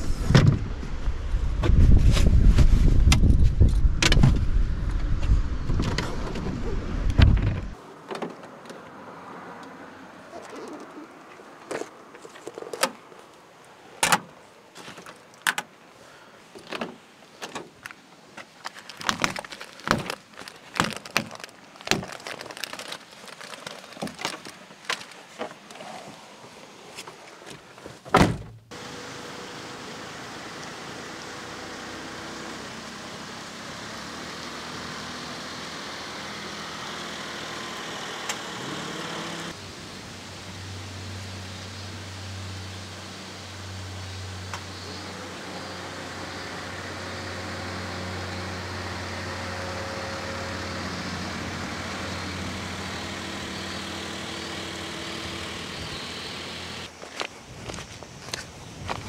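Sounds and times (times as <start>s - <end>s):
loud low rumble: 0.0s - 7.8s.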